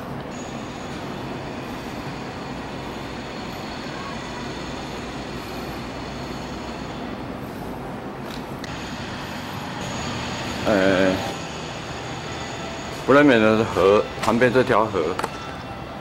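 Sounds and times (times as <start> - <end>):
church bells ringing: 8.7 - 16.0.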